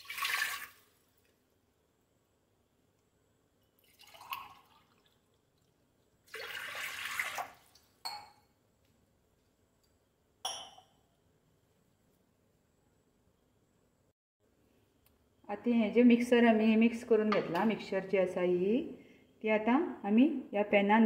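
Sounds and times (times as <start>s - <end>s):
water pouring into metal pot: 0.0s - 1.0s, 3.8s - 5.2s, 6.2s - 7.9s.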